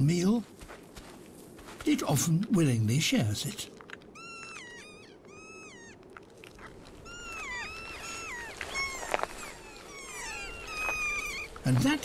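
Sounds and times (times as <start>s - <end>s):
parrots squawking: 4.2s - 6.0s, 7.0s - 11.6s.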